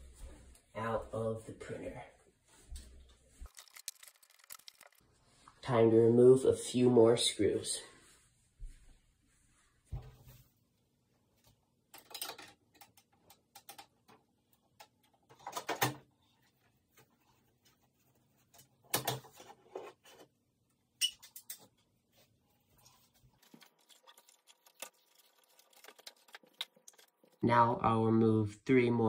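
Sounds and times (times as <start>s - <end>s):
hand tool and screws rattling: 3.5s - 5.0s.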